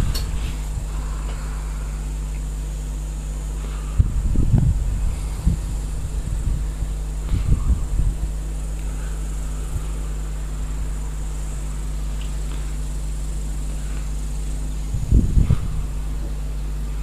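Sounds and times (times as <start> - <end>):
faint high-pitched whine: 0.0 - 17.0
steady low hum: 0.0 - 17.0
rumbling puff on microphone: 3.6 - 17.0.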